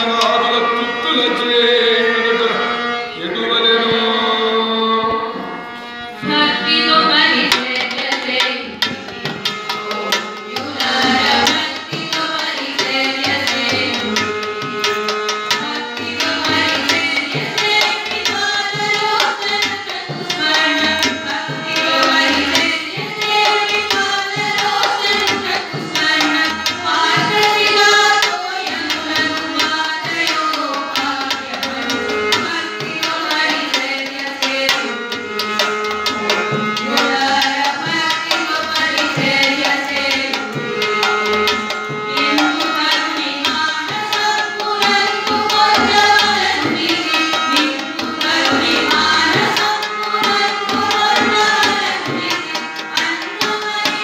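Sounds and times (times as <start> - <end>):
harmonium: 0.0 - 54.0
women singing: 6.2 - 54.0
steady drum beat: 7.1 - 29.8.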